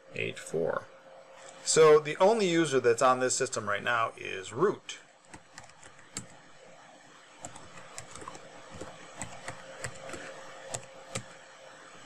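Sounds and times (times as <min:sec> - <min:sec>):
computer keyboard typing: 0:05.3 - 0:06.4, 0:07.4 - 0:11.4.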